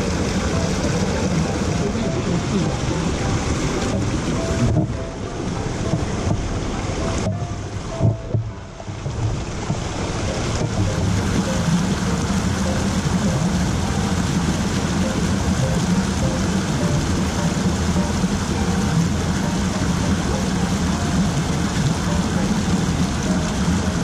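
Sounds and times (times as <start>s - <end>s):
stream water rushing over rocks: 0.0s - 24.0s.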